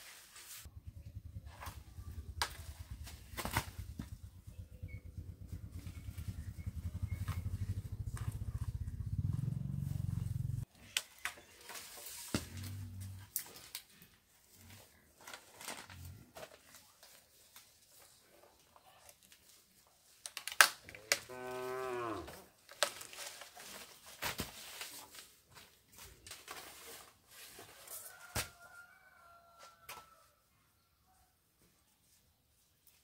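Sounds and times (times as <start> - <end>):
knocks and rustles: 1.1 - 10.3
cow mooing: 21.2 - 22.4.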